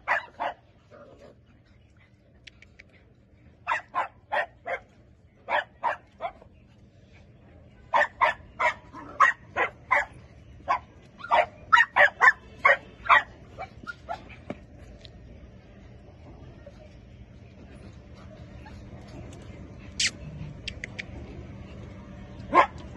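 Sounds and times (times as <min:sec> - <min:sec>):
dog barking: 0:00.0 - 0:00.6, 0:03.7 - 0:04.9, 0:05.5 - 0:06.4, 0:07.9 - 0:13.7, 0:22.5 - 0:22.8.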